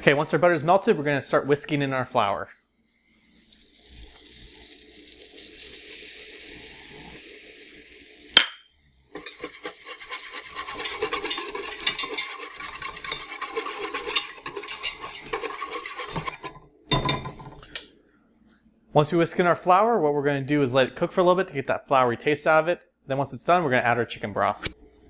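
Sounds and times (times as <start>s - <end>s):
butter sizzling in a pot: 0.0s - 8.4s, 9.0s - 16.7s
whisk scraping against pot: 9.1s - 16.6s.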